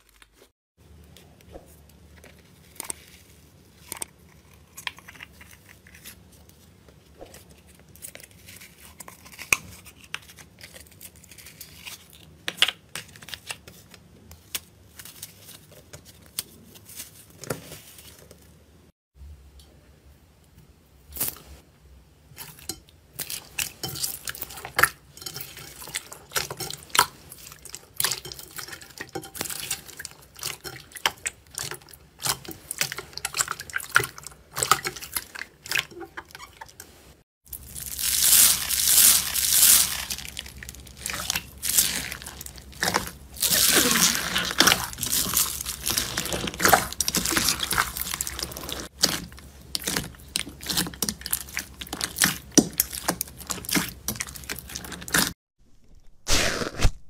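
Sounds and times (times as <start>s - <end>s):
sticky slime squishing and crackling: 37.5s - 55.4s.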